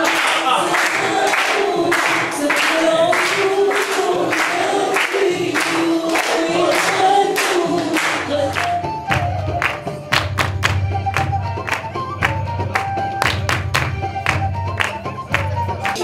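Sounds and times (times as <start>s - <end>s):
group singing in unison: 0.0s - 8.8s
hands clapping in time: 0.0s - 16.0s.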